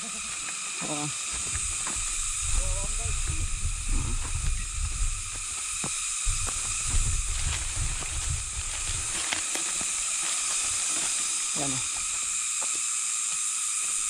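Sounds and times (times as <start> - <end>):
steady high hiss: 0.0 - 14.0
wind buffeting microphone: 1.4 - 9.2.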